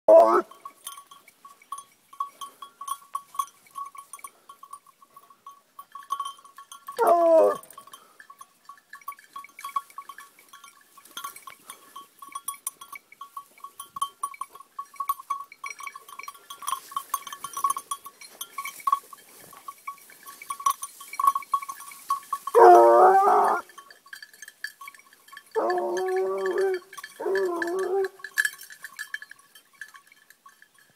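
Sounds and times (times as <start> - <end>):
hound baying: 0.1 - 0.6, 6.9 - 8.2, 22.4 - 23.8, 25.5 - 28.3
small bell clinking: 0.1 - 30.9.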